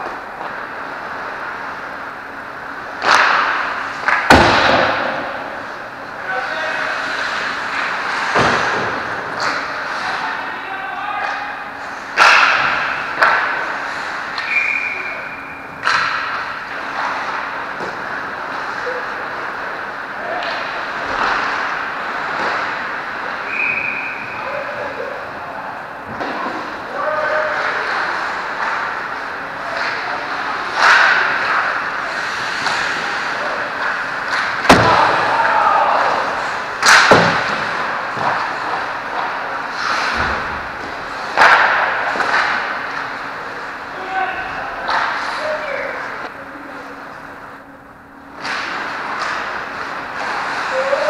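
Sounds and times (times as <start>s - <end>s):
skates scraping ice: 0.0s - 25.4s, 26.1s - 46.3s, 48.4s - 51.0s
hockey puck and stick cracks: 2.9s - 5.8s, 11.2s - 24.4s, 26.1s - 44.1s, 44.7s - 45.9s, 48.3s - 51.0s
steady high whistle tone: 14.4s - 15.6s, 23.4s - 24.4s.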